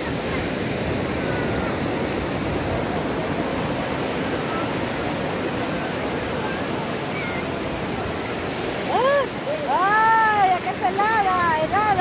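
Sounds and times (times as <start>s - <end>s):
ocean surf on a beach: 0.0s - 12.0s.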